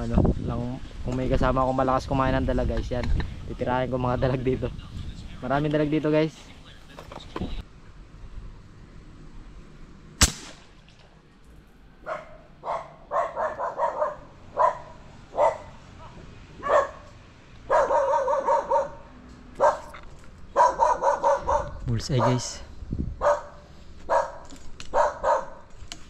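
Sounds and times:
air rifle shot: 0:10.2 - 0:11.1
dog barking: 0:12.0 - 0:22.6, 0:23.2 - 0:25.7.

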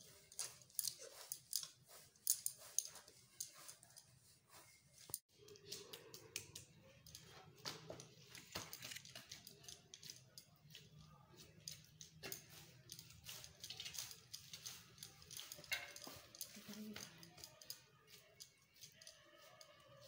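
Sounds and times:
metal ladle clinking and scraping: 0:11.6 - 0:17.7.

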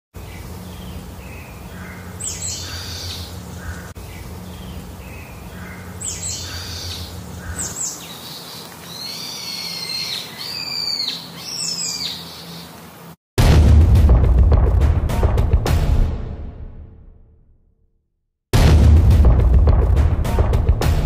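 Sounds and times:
low steady hum: 0:00.2 - 0:13.0
birds whistling: 0:00.3 - 0:12.8.

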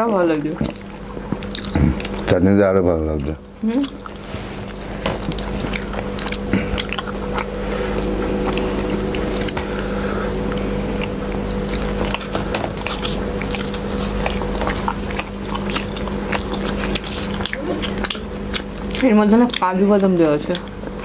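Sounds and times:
people chewing and eating: 0:00.0 - 0:21.0
steady low hum: 0:00.0 - 0:21.0.

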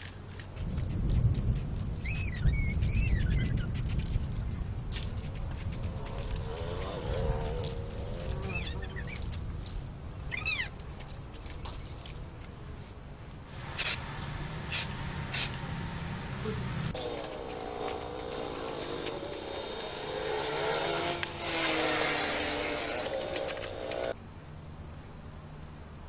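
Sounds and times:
spray-paint can hissing: 0:00.4 - 0:09.8, 0:13.8 - 0:14.0, 0:14.7 - 0:15.6, 0:17.0 - 0:24.1.

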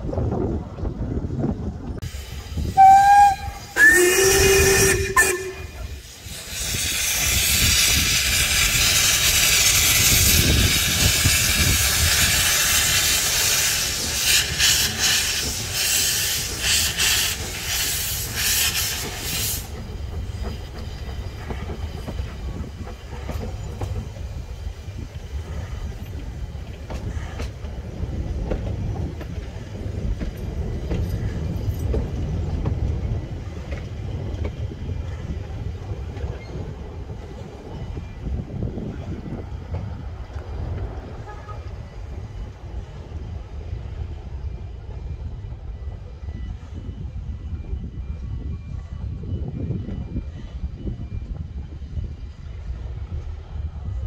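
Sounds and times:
steam hissing: 0:02.0 - 0:27.7
steam whistle blasts: 0:02.6 - 0:06.1.

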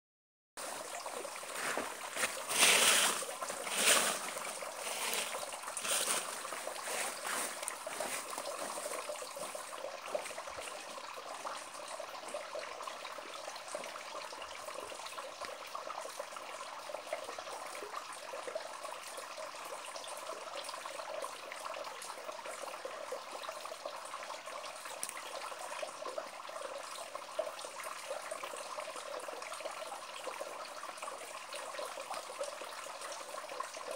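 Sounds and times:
water trickling onto rocks: 0:00.6 - 0:11.7.

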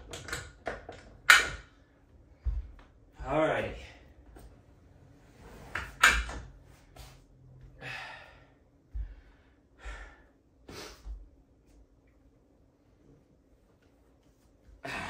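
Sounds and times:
barefoot footsteps on wooden floor: 0:02.3 - 0:03.4, 0:08.9 - 0:10.1
heavy out-of-breath sighs: 0:07.8 - 0:11.0.

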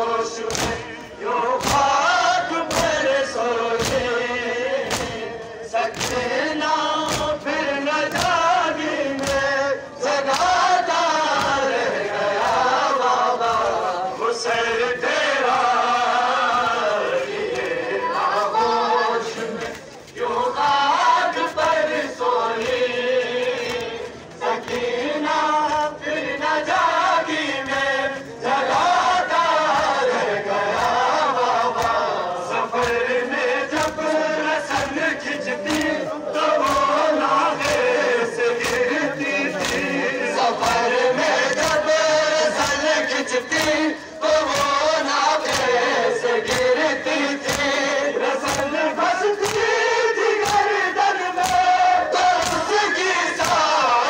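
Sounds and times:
crowd of men chanting: 0:00.0 - 0:54.0
chest-beating slaps: 0:00.4 - 0:10.6, 0:11.2 - 0:11.7, 0:30.7 - 0:50.8, 0:51.4 - 0:52.7, 0:53.4 - 0:53.8.

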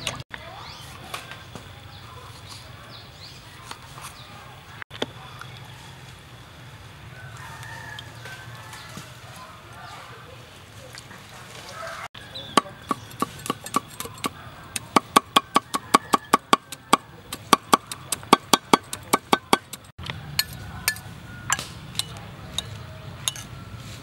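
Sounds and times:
cleaver chopping on wooden block: 0:12.5 - 0:19.9.

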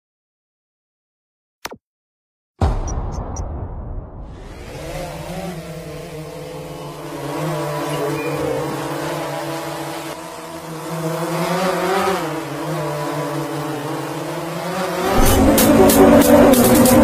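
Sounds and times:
drone propellers humming: 0:04.3 - 0:17.0.

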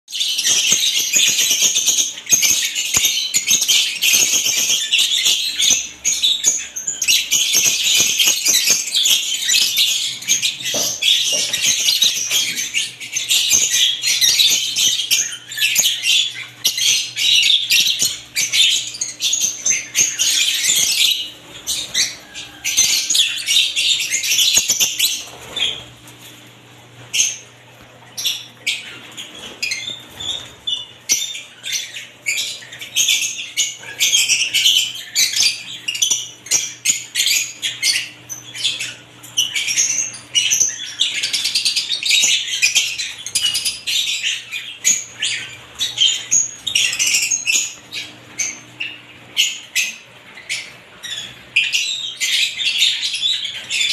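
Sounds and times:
lovebirds chirping: 0:00.1 - 0:53.9.

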